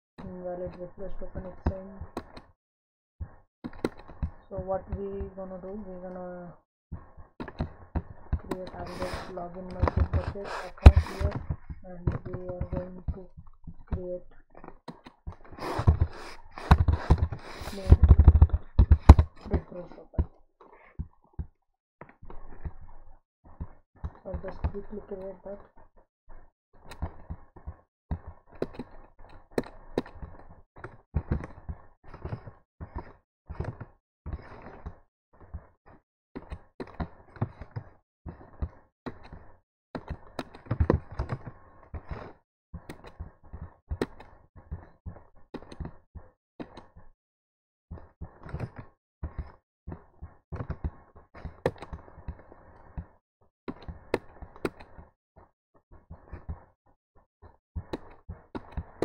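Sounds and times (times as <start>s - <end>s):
computer mouse clicks: 3.7s - 5.2s, 8.3s - 13.2s, 14.9s - 19.8s, 28.2s - 30.4s, 50.6s - 52.0s, 53.7s - 55.0s
close breathing: 7.0s - 11.7s, 15.5s - 19.2s
keyboard keys knocking: 14.9s - 20.3s.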